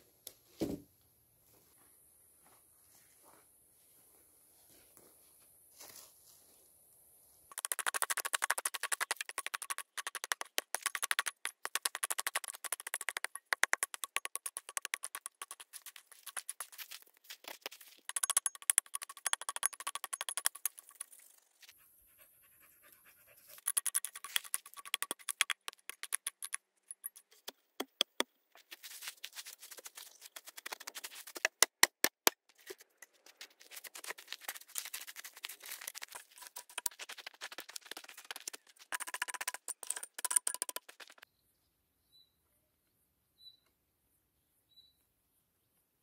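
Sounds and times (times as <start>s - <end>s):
mattock chopping stony soil: 7.5s - 20.8s, 27.2s - 41.2s
dirt and pebbles rattling: 7.5s - 21.7s, 23.6s - 27.5s, 28.6s - 31.6s, 32.5s - 41.2s.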